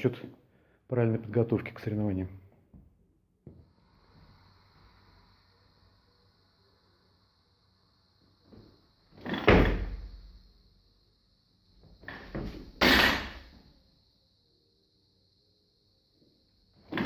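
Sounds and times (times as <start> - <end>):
barbell crashing down: 9.2 - 10.0, 12.0 - 13.5.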